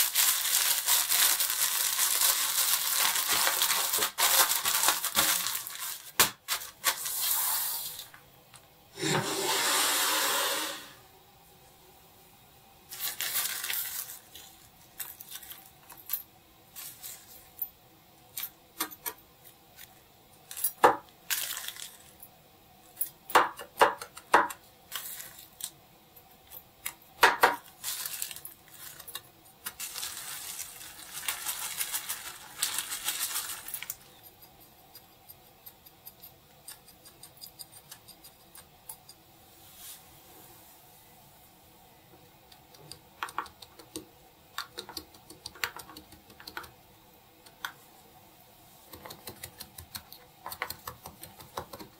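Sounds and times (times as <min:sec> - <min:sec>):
rustling: 0:27.7 - 0:34.2.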